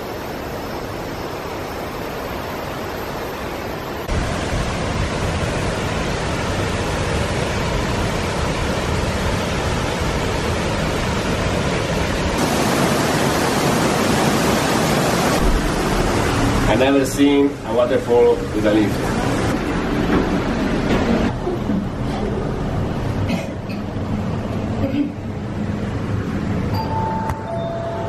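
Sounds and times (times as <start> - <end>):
waterfall rushing and crashing: 0.0 - 21.4.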